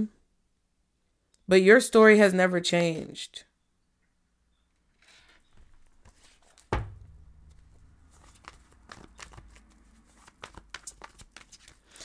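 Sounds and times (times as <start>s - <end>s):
thump on tabletop: 6.7s - 7.6s
cards clicking and rustling: 7.3s - 12.0s.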